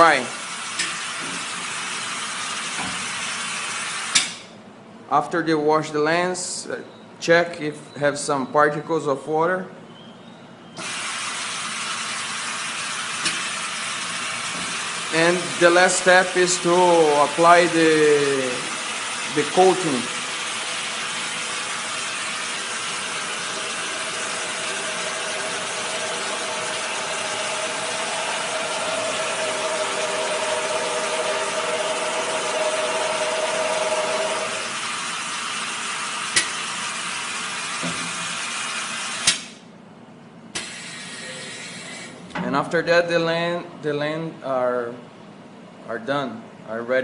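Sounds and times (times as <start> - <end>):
spin coater whirring hiss: 10.8 - 39.5.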